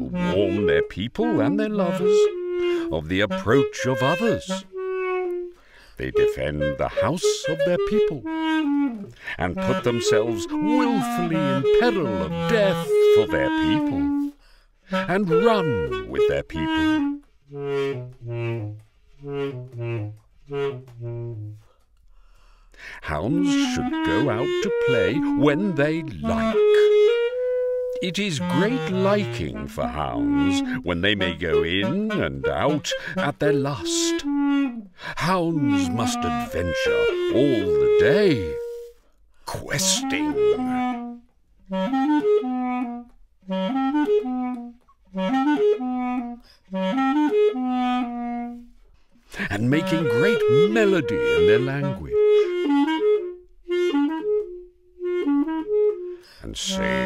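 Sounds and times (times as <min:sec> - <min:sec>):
basset horn low notes: 0:00.0 - 0:57.0.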